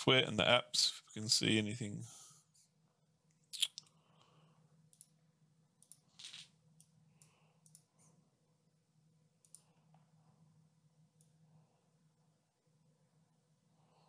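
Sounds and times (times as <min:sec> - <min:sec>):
faint low hum: 0:00.0 - 0:14.0
computer mouse clicks: 0:04.9 - 0:05.2, 0:05.8 - 0:06.1, 0:06.8 - 0:07.9, 0:09.4 - 0:10.0.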